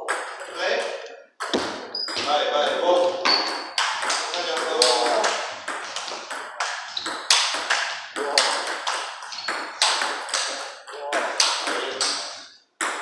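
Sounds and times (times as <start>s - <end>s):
balls bouncing on tables: 0.0s - 13.0s
table tennis balls clicking: 0.0s - 13.0s.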